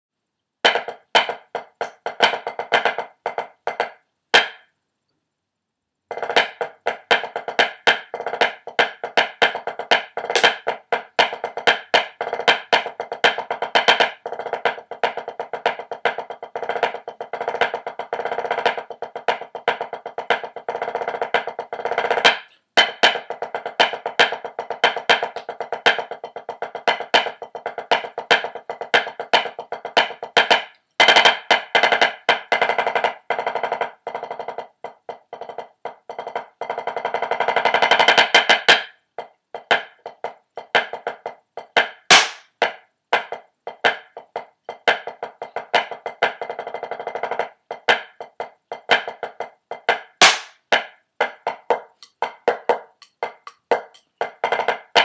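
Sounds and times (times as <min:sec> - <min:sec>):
snare drum solo: 0:09.4 - 0:10.7, 0:42.0 - 0:42.4, 0:50.2 - 0:50.8.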